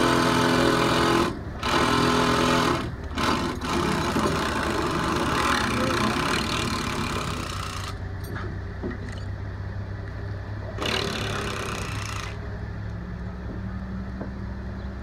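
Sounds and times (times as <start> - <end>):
engine running at low revs: 7.8 - 15.0.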